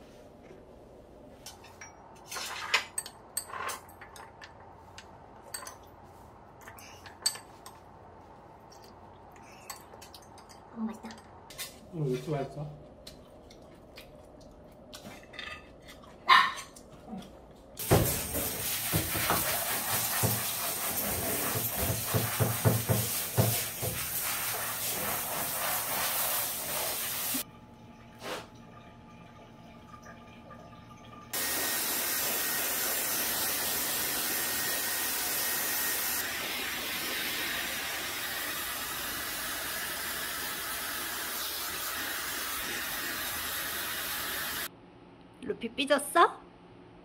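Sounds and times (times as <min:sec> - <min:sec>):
shower head spraying water: 0:17.8 - 0:27.4, 0:31.4 - 0:44.7
hair dryer blowing with whine: 0:31.4 - 0:44.7.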